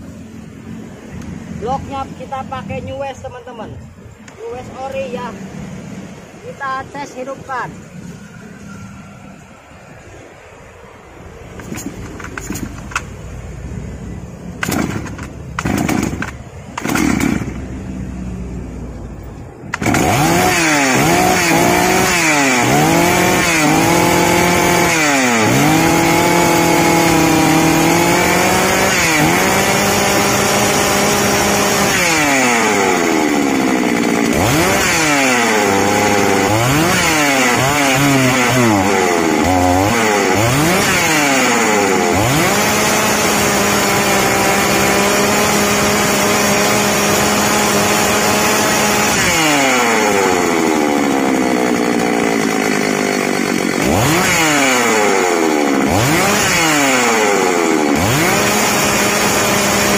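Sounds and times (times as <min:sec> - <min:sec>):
starter cord pulls: 0:11.5 - 0:13.2, 0:14.6 - 0:17.6, 0:19.7 - 0:21.6
chainsaw engine revving: 0:11.5 - 0:13.3, 0:14.5 - 0:18.0, 0:19.6 - 0:59.9.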